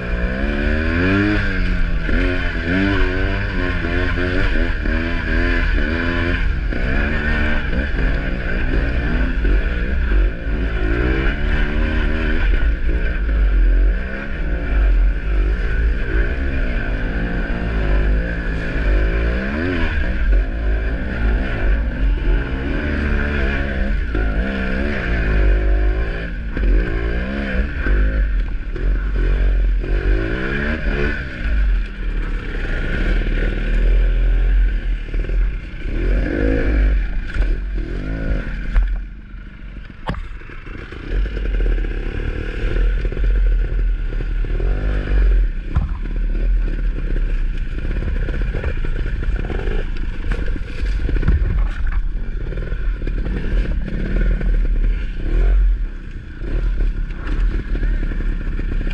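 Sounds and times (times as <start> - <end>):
dirt bike engine revving: 0.0 - 58.9
wind rumble on microphone: 45.2 - 58.9.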